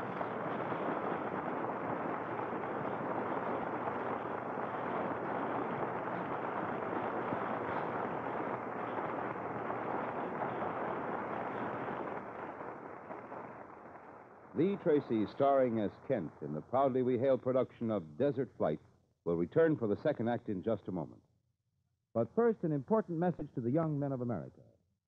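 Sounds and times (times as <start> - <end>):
steady rushing wind: 0.0 - 16.7.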